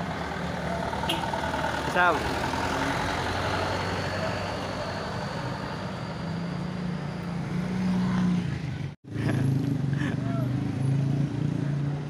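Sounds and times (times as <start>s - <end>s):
truck diesel engine pulling away: 0.0s - 8.0s
motorcycle passing close: 0.0s - 12.0s.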